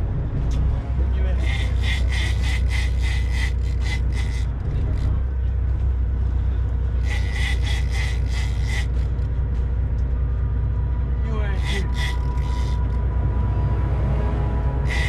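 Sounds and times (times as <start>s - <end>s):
boat engine rumbling: 0.0s - 15.0s
fishing reel rasping: 1.4s - 4.5s, 7.0s - 9.2s, 11.6s - 13.0s.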